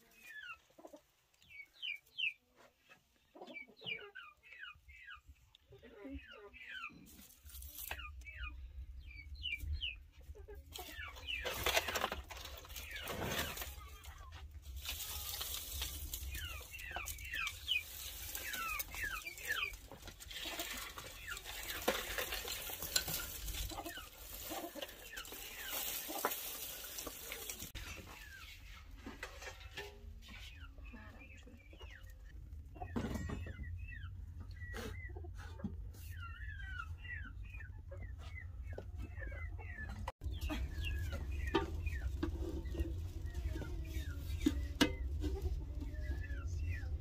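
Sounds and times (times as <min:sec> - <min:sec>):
hens clucking: 0:00.0 - 0:47.0
straw rustling and crackling: 0:07.0 - 0:08.5, 0:10.7 - 0:30.6, 0:40.2 - 0:47.0.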